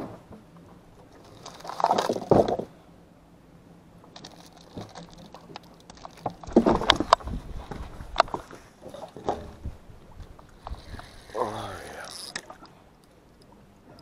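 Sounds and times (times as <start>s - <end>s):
clicks and light knocks: 4.0s - 9.6s.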